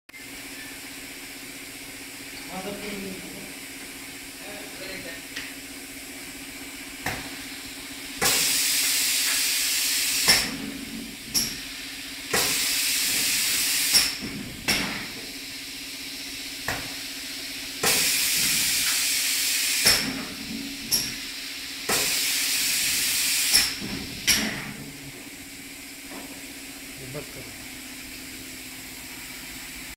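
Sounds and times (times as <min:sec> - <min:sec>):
steady low hum: 0:00.4 - 0:08.6
spray gun hissing: 0:07.4 - 0:10.6, 0:11.4 - 0:14.2, 0:15.2 - 0:20.1, 0:21.0 - 0:24.3.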